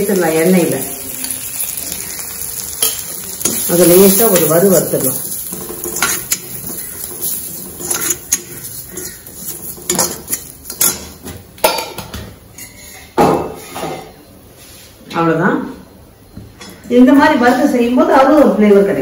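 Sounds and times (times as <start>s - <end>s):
spices roasting in oil: 0.0s - 13.0s
metal ladle scraping an iron pan: 5.4s - 11.1s.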